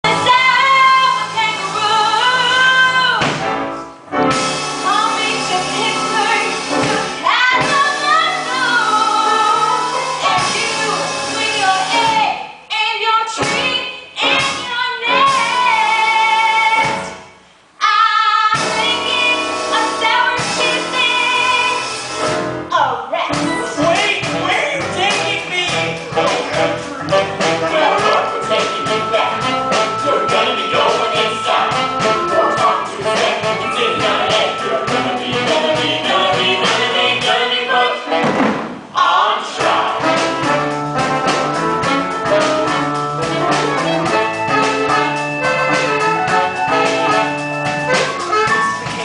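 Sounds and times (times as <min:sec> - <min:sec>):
backing music: 0:00.0 - 0:12.4, 0:13.3 - 0:17.3, 0:18.6 - 0:49.0
woman singing with vibrato: 0:00.1 - 0:03.2, 0:04.8 - 0:17.1, 0:17.8 - 0:21.9.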